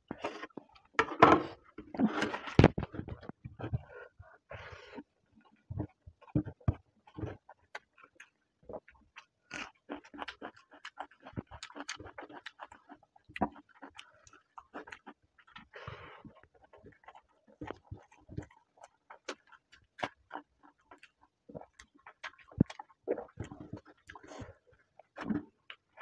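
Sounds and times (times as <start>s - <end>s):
open-mouth chewing and lip-smacking: 2.6s - 26.0s.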